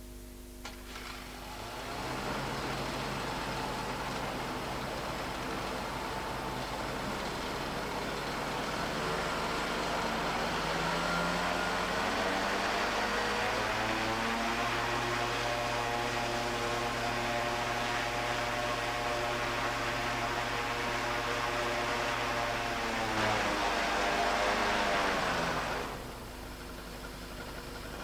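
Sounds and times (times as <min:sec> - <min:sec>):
ultralight engine and propeller running: 0:00.6 - 0:28.0.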